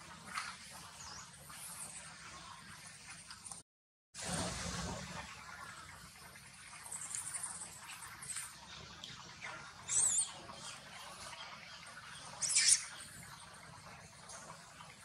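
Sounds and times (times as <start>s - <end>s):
baby monkey squeaking: 9.9s - 10.3s, 12.4s - 12.8s.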